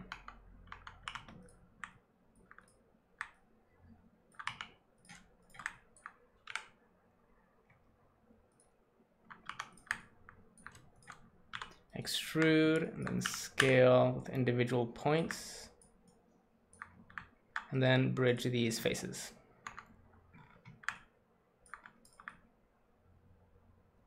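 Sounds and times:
keyboard and mouse clicks: 0.0s - 3.4s, 4.3s - 6.8s, 8.5s - 13.8s, 15.8s - 17.8s, 19.6s - 22.5s.

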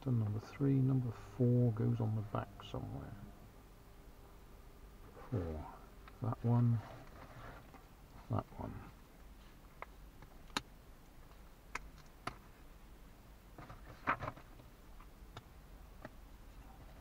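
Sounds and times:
rustling: 5.0s - 12.7s, 13.5s - 15.2s.

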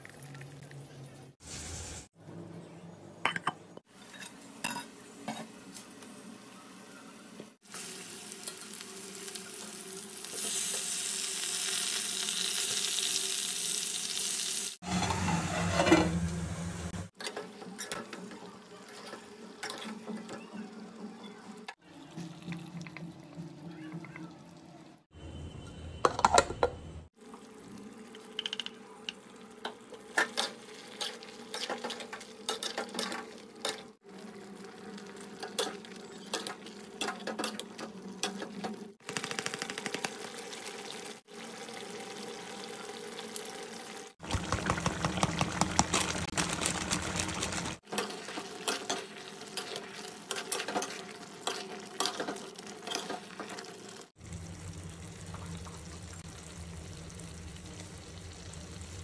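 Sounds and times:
metal spatula scraping steel pot: 14.8s - 16.1s, 47.9s - 53.7s.

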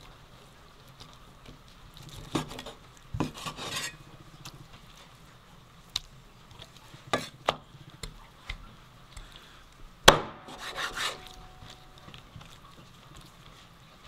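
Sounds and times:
knife chopping on wooden board: 10.1s - 11.4s.

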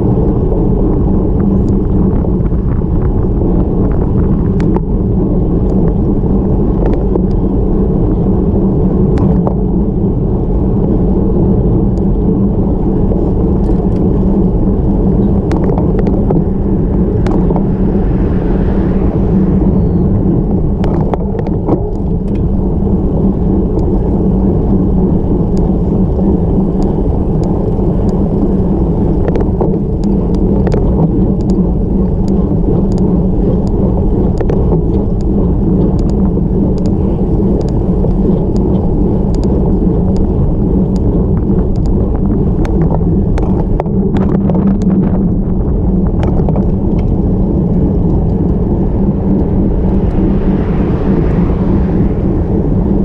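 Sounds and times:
road noise: 0.0s - 53.0s
wind rumble: 0.0s - 53.0s
small clicks: 29.1s - 31.6s, 32.2s - 42.0s.

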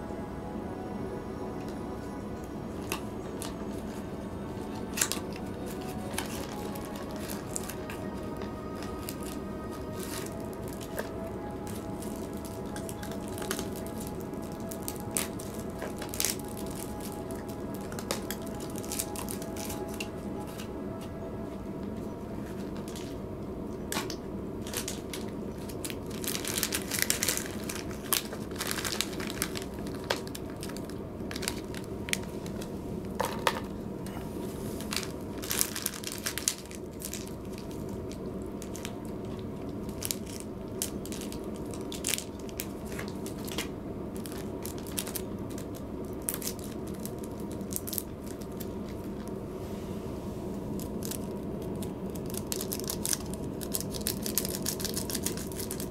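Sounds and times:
steady low hum: 0.0s - 55.9s
cat crunching dry food: 50.8s - 55.9s.

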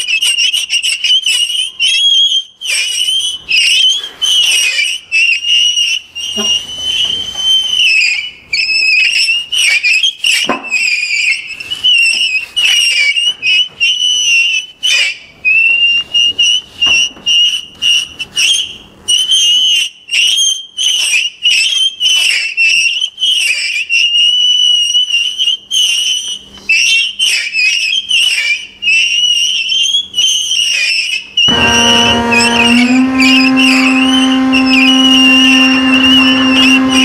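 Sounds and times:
warbling electronic whistling tone: 0.0s - 37.0s.

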